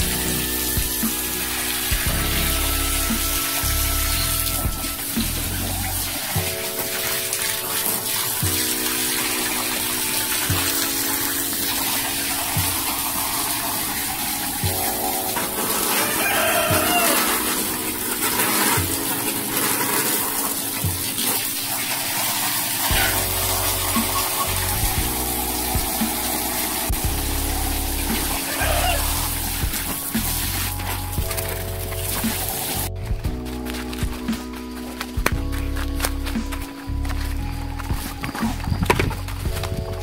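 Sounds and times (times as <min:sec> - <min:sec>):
music with chords and soft beat: 0:00.0 - 0:40.0
water running: 0:00.0 - 0:40.0
chicken calling: 0:13.5 - 0:18.3, 0:22.9 - 0:26.9, 0:27.6 - 0:29.5.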